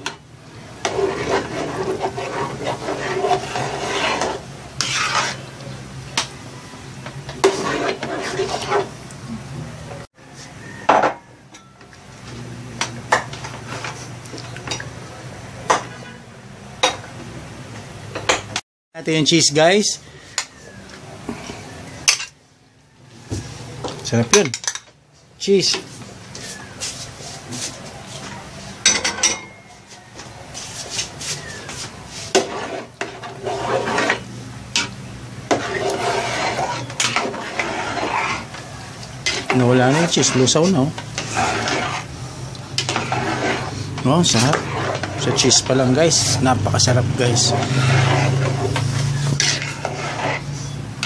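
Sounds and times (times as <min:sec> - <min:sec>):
spoon scraping through sauce: 0:00.8 - 0:05.7, 0:07.4 - 0:09.0, 0:30.0 - 0:50.8.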